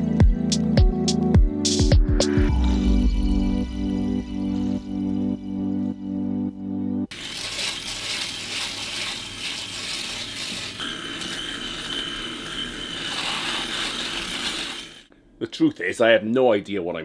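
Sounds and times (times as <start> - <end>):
electric shaver rasping on beard: 7.1 - 15.0.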